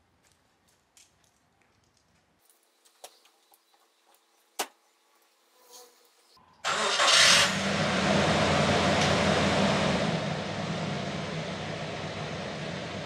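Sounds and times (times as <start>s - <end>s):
truck engine starting and idling: 6.6s - 13.0s.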